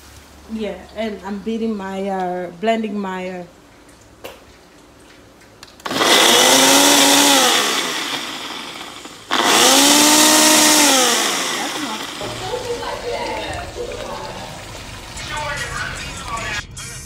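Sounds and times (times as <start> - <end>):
blender blending: 5.8 - 16.6.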